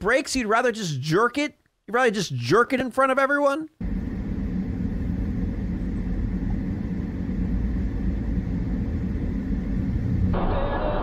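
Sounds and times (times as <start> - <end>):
car road and engine rumble: 3.8 - 10.4.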